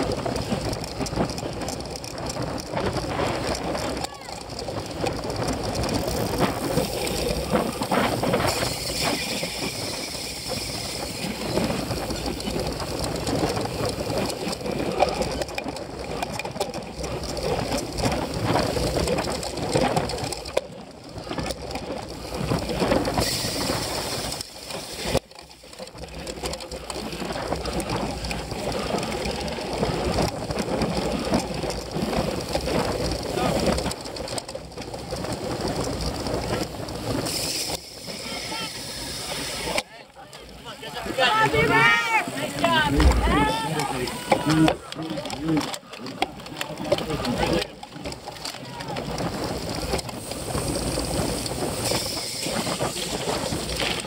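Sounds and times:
wind rushing over microphone: 0.0s - 15.0s, 41.5s - 44.8s
bike chain and frame rattling: 0.0s - 54.0s
bike tyres on turf: 0.0s - 54.0s.

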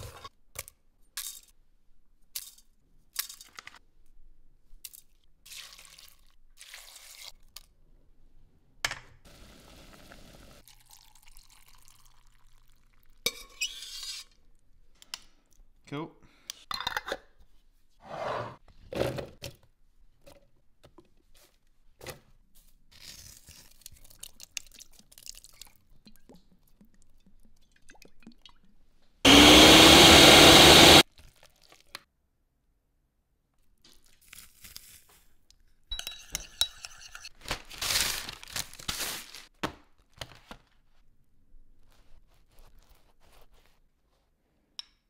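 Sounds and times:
food processor motor running: 29.3s - 31.0s
rustling and scraping handling: 41.7s - 44.4s.

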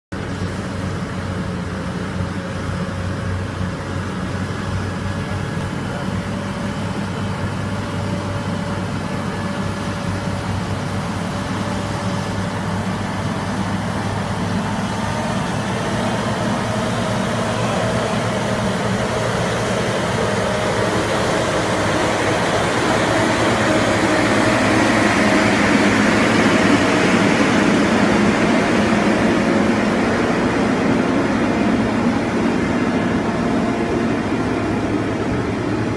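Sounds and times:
truck engine droning: 0.1s - 35.9s
tyres and trailer rumbling: 0.1s - 35.9s.

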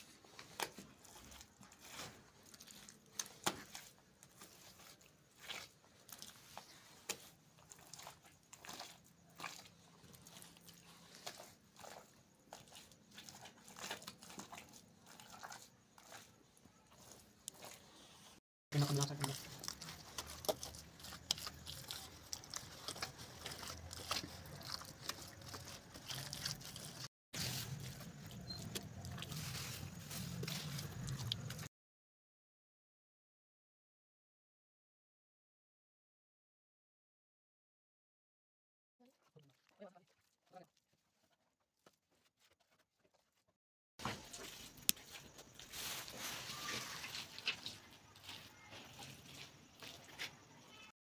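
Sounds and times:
hands patting wet mortar: 0.0s - 17.9s.

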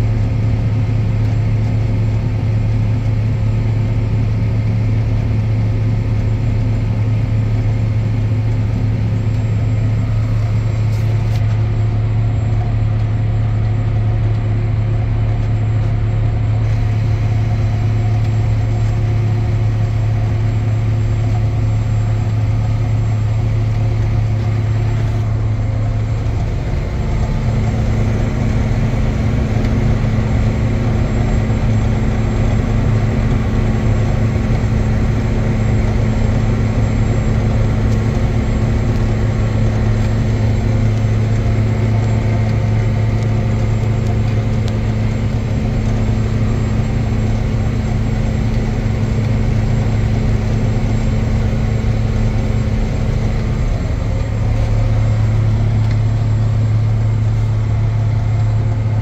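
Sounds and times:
tractor diesel engine droning: 0.0s - 59.0s.

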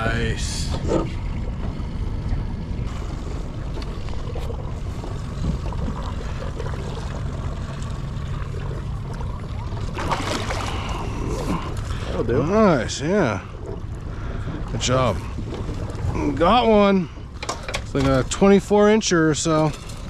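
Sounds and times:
outboard motor rumbling: 0.0s - 20.0s
water splashing: 2.9s - 17.2s.

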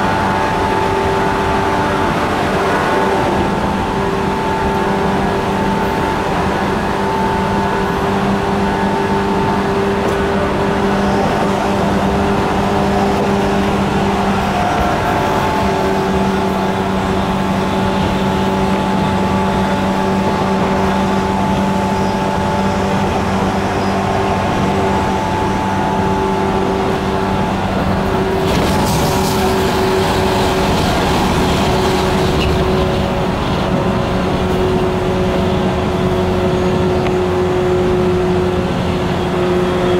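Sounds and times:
wheel and rail rumbling: 0.0s - 39.9s
traction motors growling: 9.3s - 39.9s.

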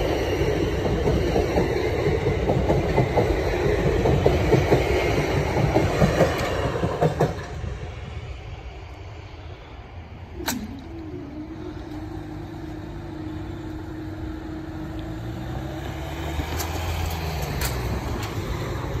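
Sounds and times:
car engines: 7.4s - 19.0s.

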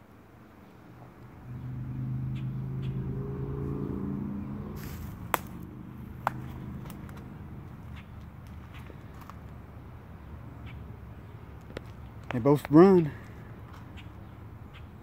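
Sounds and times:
engine running: 0.8s - 12.4s.

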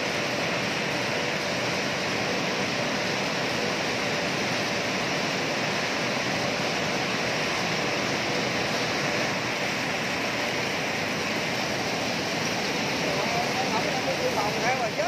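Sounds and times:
machinery hissing: 8.4s - 15.0s.

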